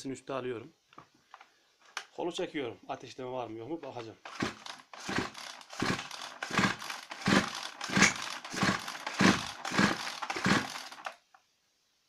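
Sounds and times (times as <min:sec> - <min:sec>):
chainsaw starter cord pulled: 0:04.0 - 0:11.2
engine turning over without firing: 0:04.2 - 0:11.2.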